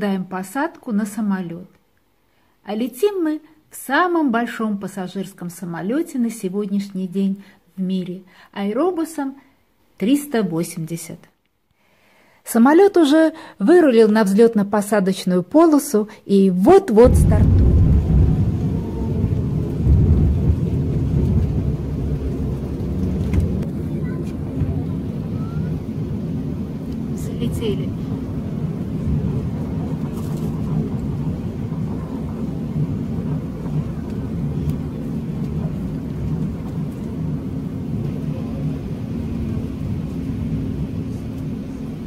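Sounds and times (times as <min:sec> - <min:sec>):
jet engines rumbling: 0:17.0 - 0:42.0
wheels running on runway: 0:18.3 - 0:27.1, 0:27.9 - 0:42.0.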